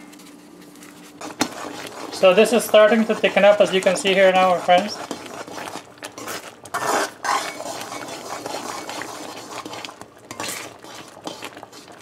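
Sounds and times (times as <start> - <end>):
boiling fudge mixture: 0.2 - 12.0
metal spoon scraping a pot: 1.2 - 12.0.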